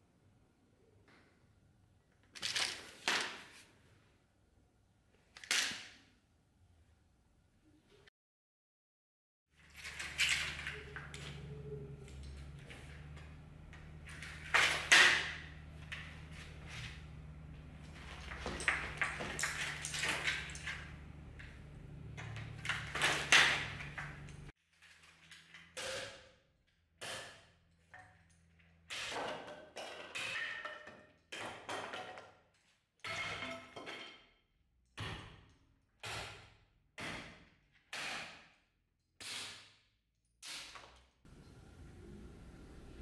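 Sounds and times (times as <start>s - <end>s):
steady low hum: 41.3s - 43.0s.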